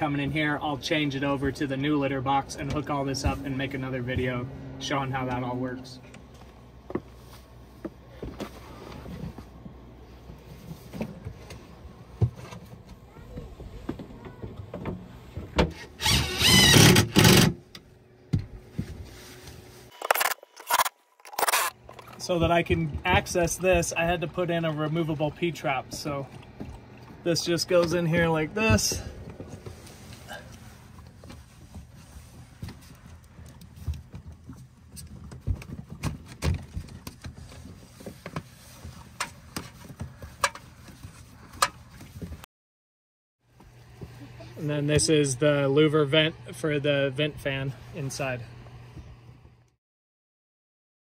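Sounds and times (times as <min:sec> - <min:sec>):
plywood panel scraping with squeal: 0:15.7 - 0:17.4.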